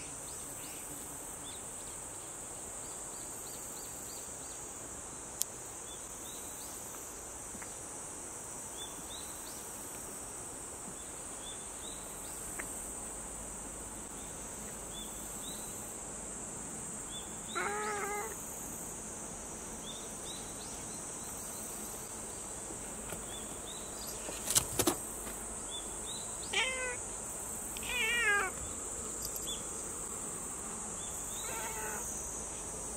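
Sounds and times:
high insect chorus: 0.0s - 32.9s
cat meowing: 17.6s - 18.4s, 26.5s - 27.0s, 27.8s - 28.6s, 31.4s - 32.0s.

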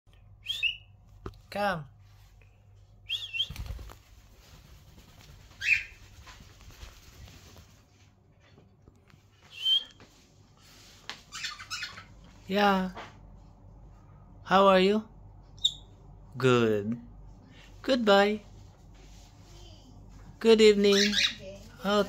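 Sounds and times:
cockatiel whistled chirps: 0.4s - 0.9s, 3.0s - 3.6s, 5.6s - 6.0s, 9.5s - 10.0s
wings fluttering: 3.1s - 8.0s.

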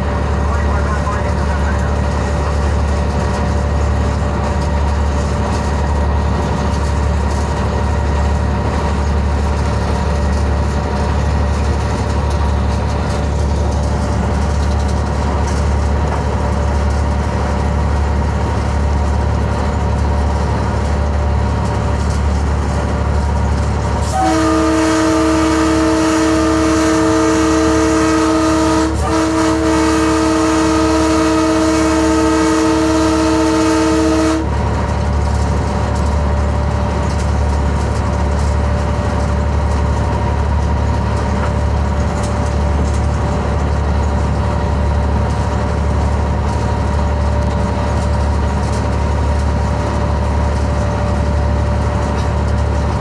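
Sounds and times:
locomotive engine drone: 0.0s - 53.0s
multi-tone air horn: 24.0s - 34.5s.

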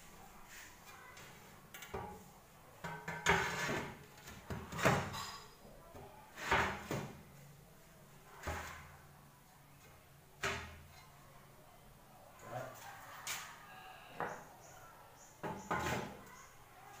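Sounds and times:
ceramic tile scraping and knocking: 2.8s - 5.5s.

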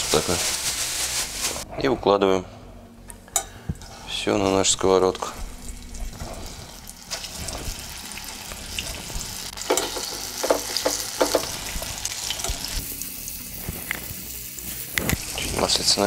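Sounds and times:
fish sizzling in hot oil: 0.0s - 1.6s, 5.5s - 16.0s.

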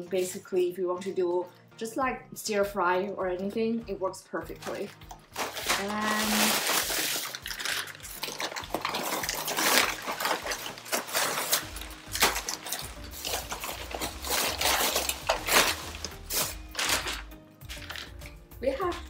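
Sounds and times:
background music: 0.0s - 19.0s
foil and plastic crinkling: 4.5s - 18.2s.

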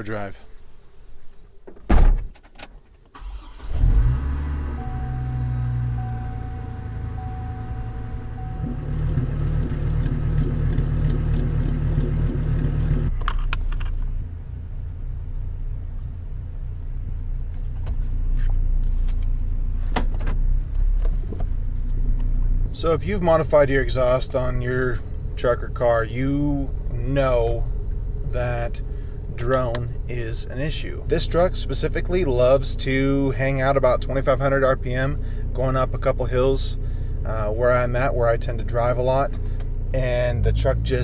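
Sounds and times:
pickup engine idling: 3.2s - 41.0s
steady chime tone: 4.8s - 8.9s.

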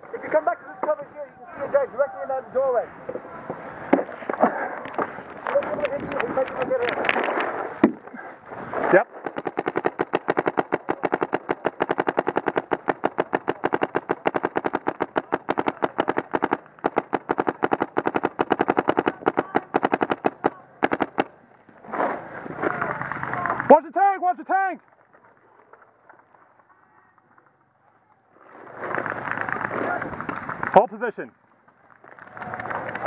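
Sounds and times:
paintball marker firing: 9.1s - 21.4s.

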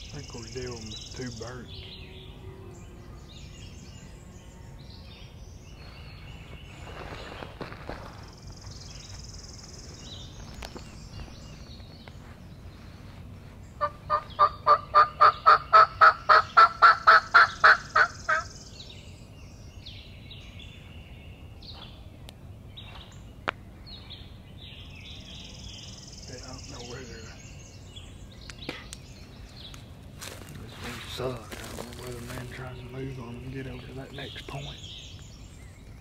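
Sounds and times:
loud bird call: 13.8s - 18.8s.

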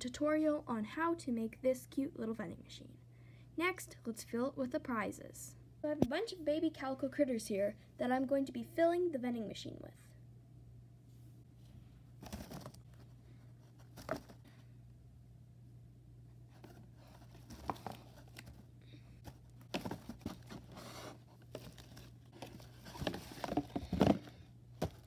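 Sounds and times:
cardboard rustling and scraping: 12.2s - 14.5s, 16.5s - 25.0s.

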